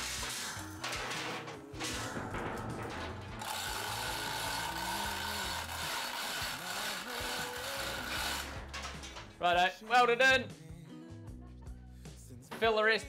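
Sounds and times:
chain hoist ratchet clicking: 2.9 - 9.4.

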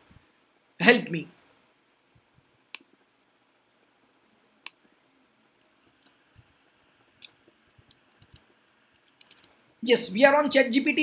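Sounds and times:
computer mouse clicks: 7.2 - 9.5.

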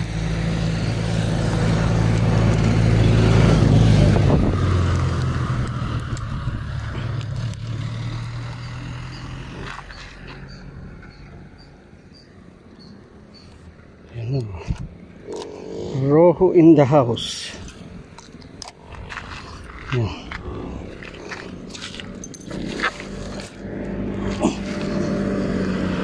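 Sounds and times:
van driving past: 0.0 - 12.7, 18.8 - 26.0
tyre noise on concrete: 18.1 - 26.0.

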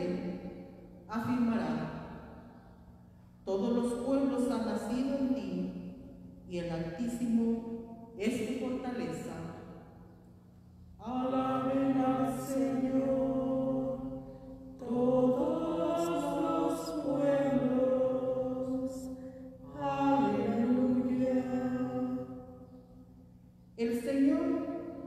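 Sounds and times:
person singing a chant: 11.0 - 22.8
breaths: 14.2 - 14.8, 19.1 - 19.6.

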